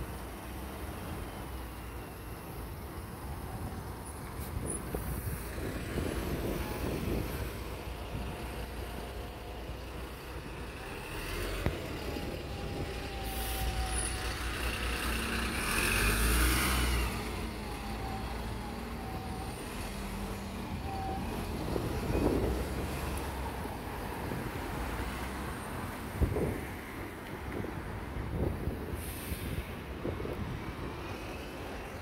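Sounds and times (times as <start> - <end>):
bus whine: 0.0 - 32.0
bus engine revving: 10.4 - 18.6
air brake hiss: 28.9 - 29.8.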